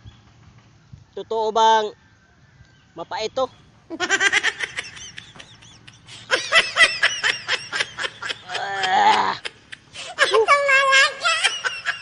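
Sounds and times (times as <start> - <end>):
man snickering: 3.9 - 10.2.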